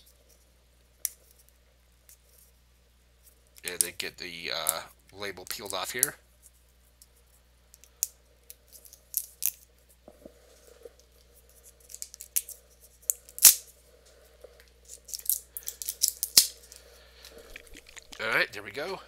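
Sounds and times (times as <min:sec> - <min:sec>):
plastic seal crinkling and crackling: 0:14.9 - 0:18.4.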